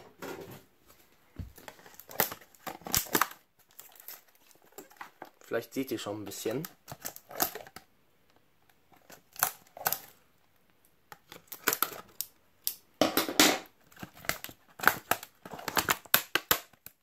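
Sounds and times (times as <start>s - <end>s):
plastic packaging crinkling: 1.5s - 7.8s, 8.9s - 10.2s, 11.1s - 12.3s, 13.7s - 17.0s
scissors cutting plastic wrap: 1.6s - 5.0s, 6.6s - 7.8s, 13.8s - 17.0s.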